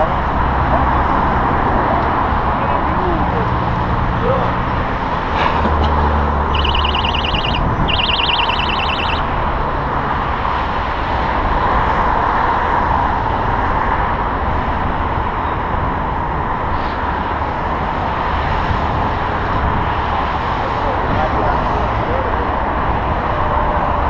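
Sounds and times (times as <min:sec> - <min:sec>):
passing vehicles: 0:00.0 - 0:24.0
warbling electronic alarm tone: 0:06.4 - 0:09.3.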